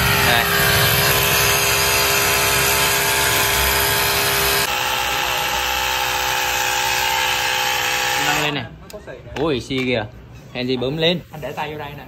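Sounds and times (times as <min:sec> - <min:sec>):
electric tyre inflator running: 0:00.0 - 0:08.6.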